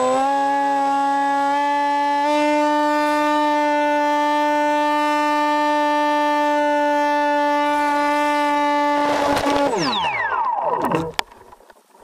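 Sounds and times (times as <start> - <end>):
model airplane motor droning: 0.0 - 11.5.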